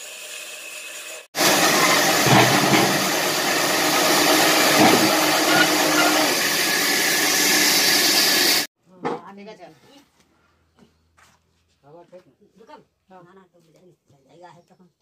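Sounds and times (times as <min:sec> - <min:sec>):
band sawmill running: 0:00.0 - 0:08.7.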